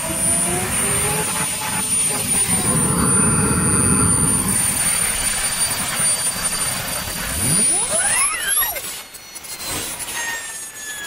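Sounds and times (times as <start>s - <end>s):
jet turbine whine and exhaust rush: 0.0s - 11.0s
faint whistle: 4.2s - 11.0s.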